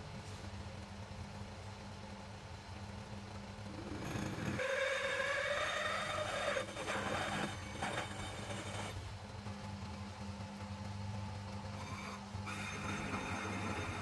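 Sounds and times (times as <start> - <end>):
metal lathe humming: 3.7 - 14.0
drill squealing into metal: 4.3 - 9.0, 11.7 - 14.0.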